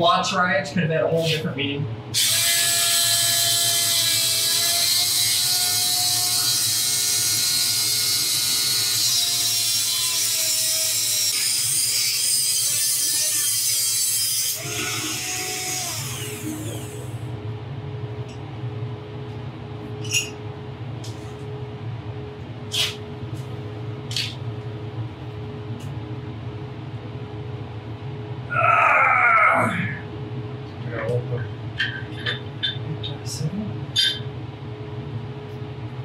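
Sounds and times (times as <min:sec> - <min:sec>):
rotary tool cutting steel pipe: 0:02.2 - 0:17.0.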